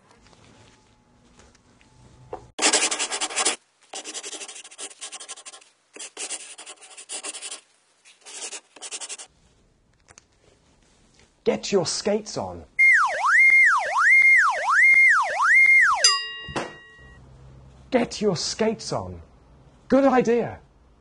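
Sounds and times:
marker pen writing on whiteboard: 0:02.6 - 0:09.3.

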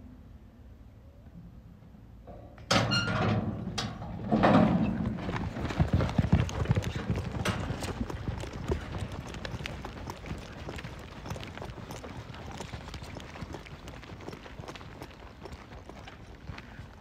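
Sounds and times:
metal gate banging open: 0:02.3 - 0:05.0
horses galloping on dirt: 0:03.4 - 0:17.0.

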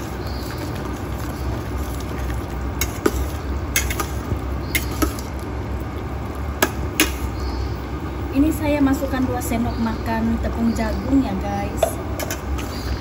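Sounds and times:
spatula stirring thick sauce: 0:00.0 - 0:05.4.

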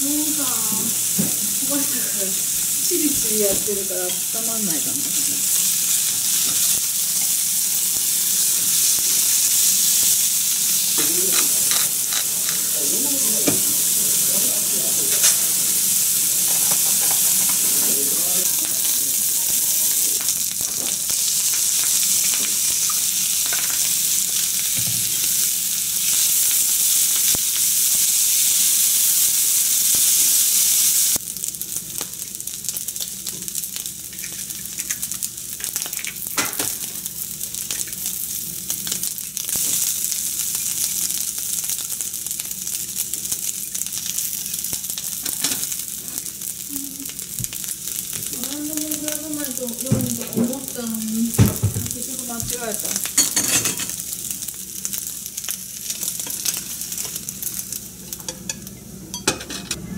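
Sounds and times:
food sizzling in frying pan: 0:00.0 - 0:59.9.

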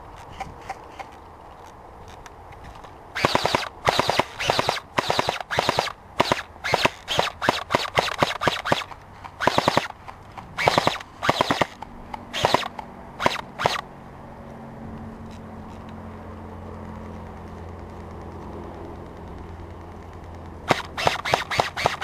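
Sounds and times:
airsoft guns firing bursts: 0:03.2 - 0:10.0, 0:10.6 - 0:13.8, 0:20.6 - 0:22.0.

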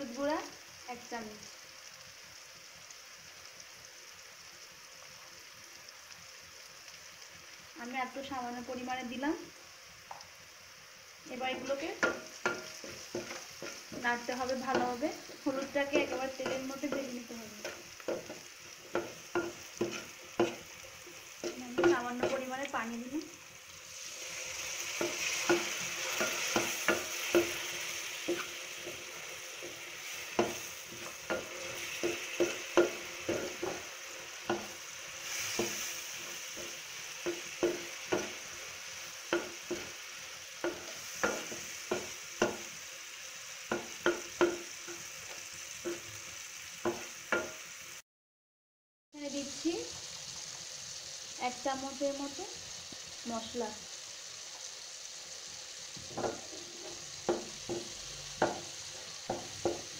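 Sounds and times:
onions sizzling in hot oil: 0:00.0 - 0:48.0, 0:49.1 - 0:59.9
spatula knocking and scraping pan: 0:11.4 - 0:22.6, 0:24.8 - 0:40.0, 0:40.6 - 0:42.8, 0:43.7 - 0:46.1, 0:46.8 - 0:47.6, 0:56.0 - 0:59.9.

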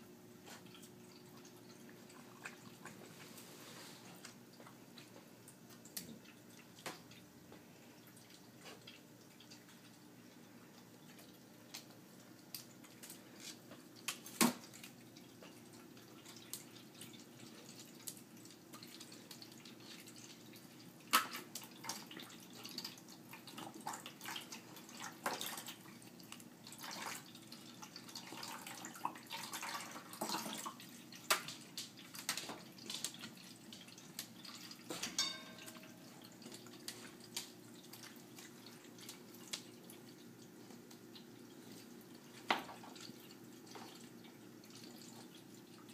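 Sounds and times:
running water: 0:00.0 - 0:45.9
puppy splashing water: 0:00.4 - 0:07.2, 0:08.0 - 0:45.9.

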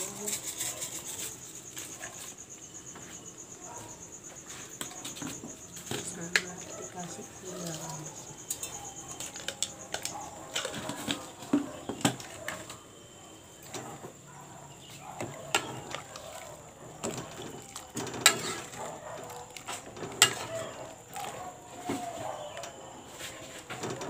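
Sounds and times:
metal spoon stirring in a pot: 0:00.0 - 0:02.4, 0:04.9 - 0:12.8, 0:14.8 - 0:21.9.

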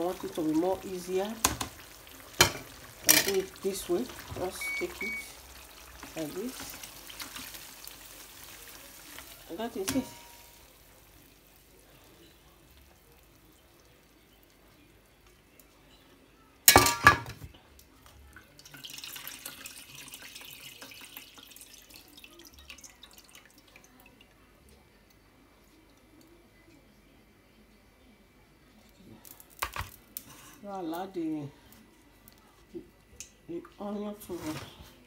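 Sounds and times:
faint crackling hiss of hot pan: 0:00.0 - 0:25.2, 0:28.8 - 0:35.0
frying pan clattering on hob: 0:01.3 - 0:03.6, 0:09.8 - 0:10.6, 0:16.7 - 0:17.5.

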